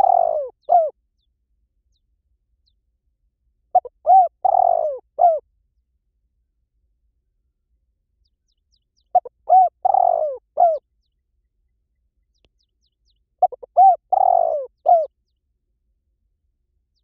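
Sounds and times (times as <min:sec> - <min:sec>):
dove cooing: 0:00.0 - 0:01.0, 0:03.7 - 0:05.4, 0:09.1 - 0:10.8, 0:13.4 - 0:15.1.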